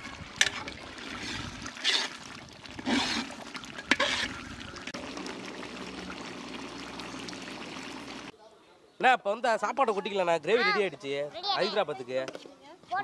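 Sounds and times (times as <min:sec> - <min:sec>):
gravy bubbling in a pot: 0:00.0 - 0:08.3
ladle stirring thick gravy: 0:00.0 - 0:08.3.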